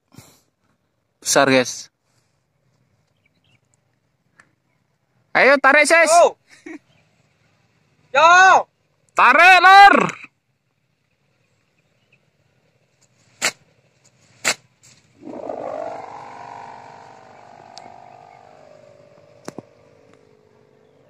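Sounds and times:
kite hummer droning: 15.2s - 21.0s.

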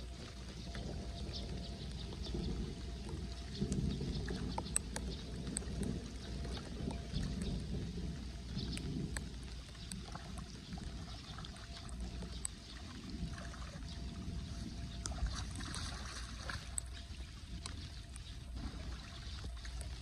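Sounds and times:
water sloshing and trickling: 0.0s - 20.0s
small splashes: 14.9s - 20.0s.

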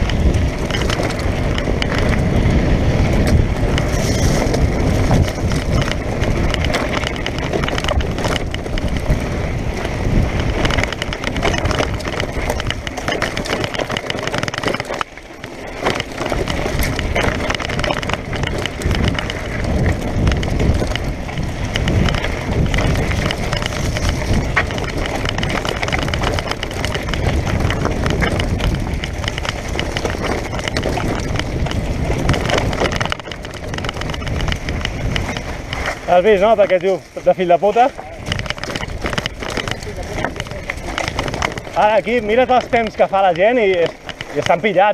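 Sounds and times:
bike rattling over bumps: 0.0s - 44.9s
tyres crunching over gravel: 0.0s - 44.9s
wind rushing on microphone: 0.0s - 44.9s.

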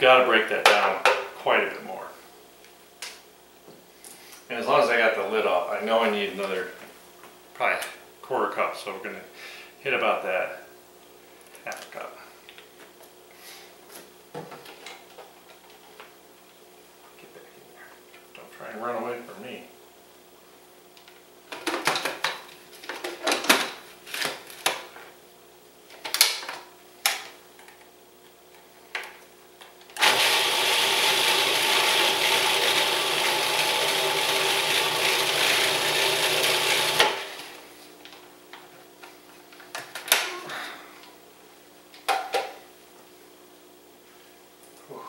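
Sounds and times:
food processor motor running: 30.0s - 37.6s.

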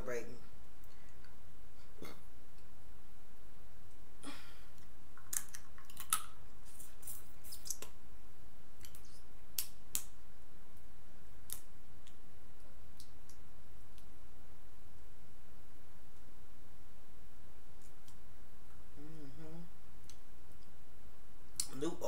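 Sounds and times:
steady low hum: 0.0s - 22.0s
shellfish shell cracking: 5.2s - 6.4s.

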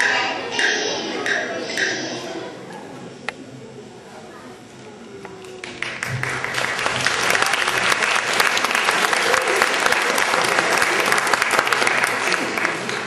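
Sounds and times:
audience applause: 5.5s - 13.0s.

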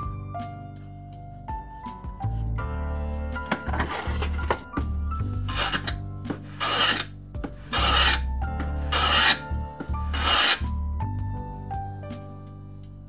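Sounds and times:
background music: 0.0s - 13.0s
hand plane rasping on wood: 3.5s - 4.6s, 5.4s - 10.7s.

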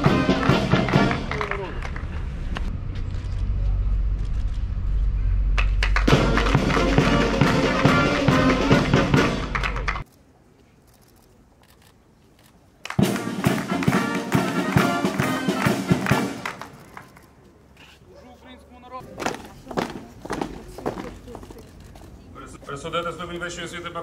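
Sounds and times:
brass band playing: 0.0s - 1.4s, 6.1s - 10.0s, 13.0s - 16.6s
drum beats: 0.0s - 1.4s, 5.8s - 10.0s, 13.0s - 16.6s.

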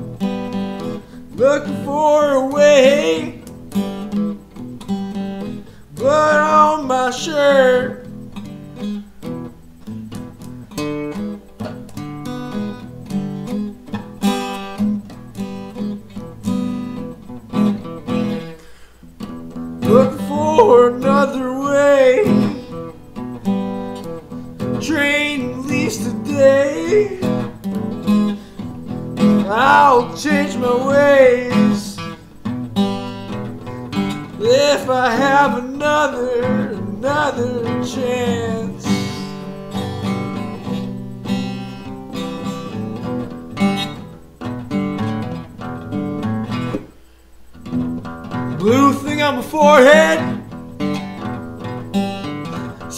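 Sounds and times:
acoustic guitar strumming: 0.0s - 52.9s
man singing: 1.3s - 3.5s, 5.9s - 8.1s, 19.8s - 23.0s, 24.7s - 27.6s, 29.2s - 32.2s, 34.3s - 39.6s, 48.6s - 50.5s.

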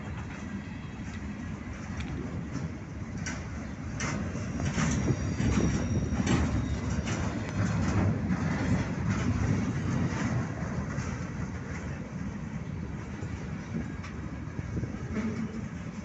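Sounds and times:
clacks at rail joints: 0.0s - 16.0s
train wheels rumbling on rail: 0.0s - 16.0s
faint high squeal: 4.3s - 7.7s.

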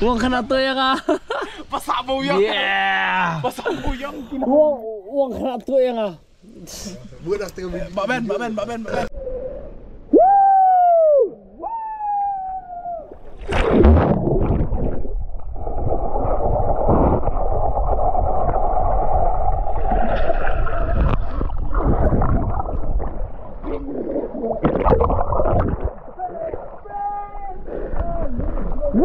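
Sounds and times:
water splash: 13.2s - 27.1s
man yelling: 26.2s - 27.6s.

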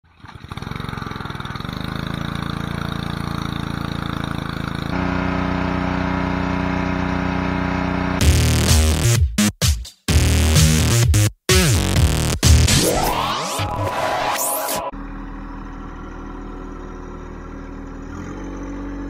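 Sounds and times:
engine pull-start: 0.0s - 8.2s
small gas engine running: 0.0s - 8.6s, 14.9s - 19.0s.

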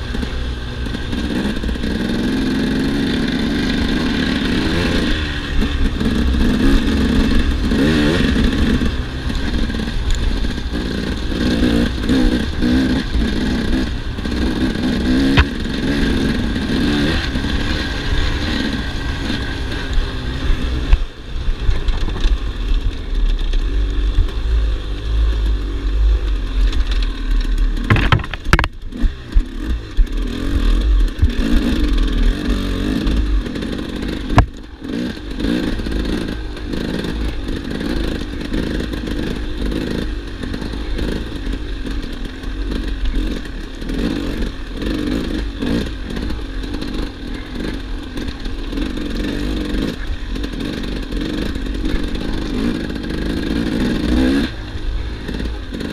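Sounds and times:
bike clattering over rough ground: 0.0s - 55.9s
motorcycle engine revving: 0.0s - 55.9s
sharp knocks: 27.8s - 28.8s.

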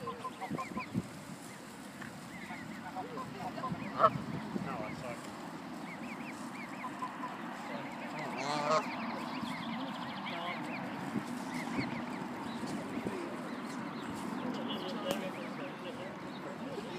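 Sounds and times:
goose honking: 0.0s - 1.0s, 2.0s - 5.1s, 5.8s - 10.8s.

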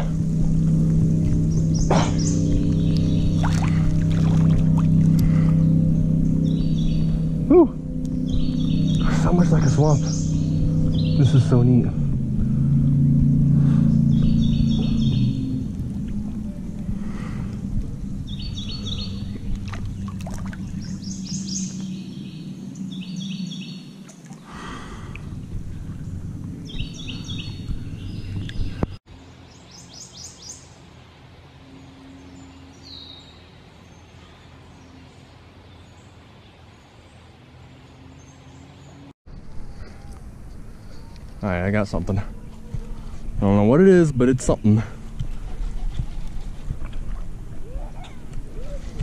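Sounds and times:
warbler singing high notes: 0.0s - 24.4s, 25.3s - 30.8s
low rumble: 0.0s - 29.0s, 39.3s - 49.0s.

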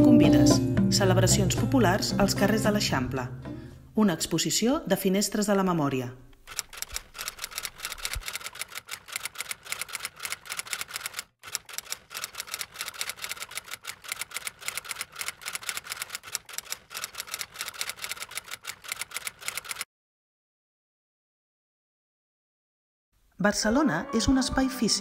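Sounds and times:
typewriter keys clacking: 6.4s - 19.9s.

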